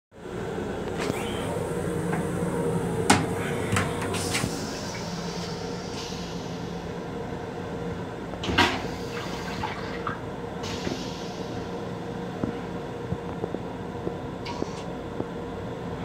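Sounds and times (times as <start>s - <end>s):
moving train hum: 0.2s - 16.0s
toilet flushing whoosh: 8.6s - 11.5s.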